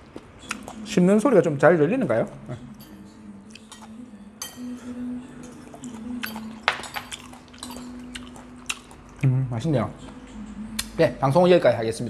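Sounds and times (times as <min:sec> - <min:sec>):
close chewing: 0:00.0 - 0:00.9, 0:03.5 - 0:04.0, 0:05.5 - 0:09.3
spoons clinking on ceramic: 0:02.8 - 0:08.4.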